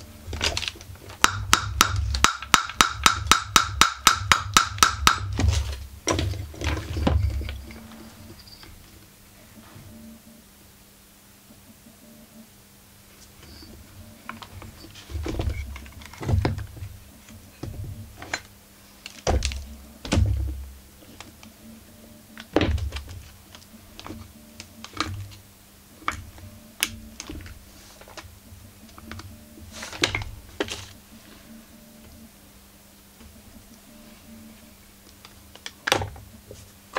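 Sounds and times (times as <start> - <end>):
faint low hum: 0.0 - 36.9
heavier thuds: 19.2 - 20.8.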